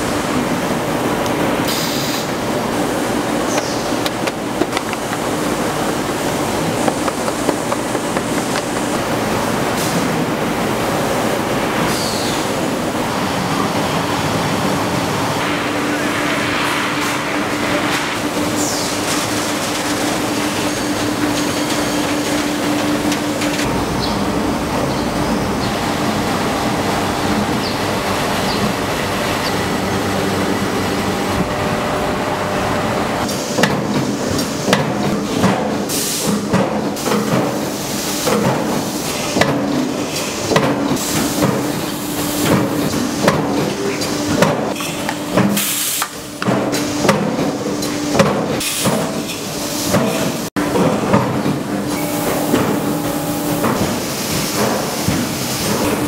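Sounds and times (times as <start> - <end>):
factory machinery running: 0.0 - 56.0
machinery clanking and knocking: 3.3 - 10.6, 46.3 - 56.0.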